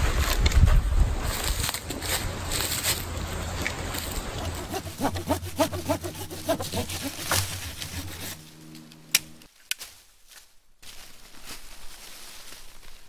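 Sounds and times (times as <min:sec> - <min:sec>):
hand saw cutting wood: 0:04.1 - 0:09.5.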